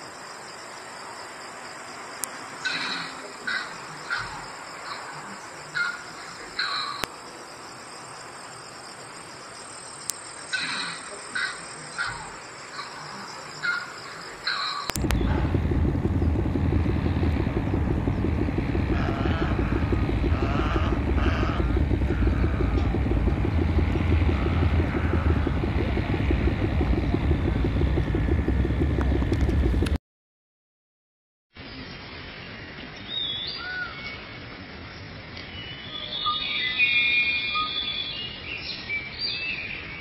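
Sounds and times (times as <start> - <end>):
insects droning: 0.0 - 30.0, 31.6 - 40.0
herons calling harshly: 2.6 - 7.0, 10.5 - 27.1
loud low rumble: 15.0 - 30.0.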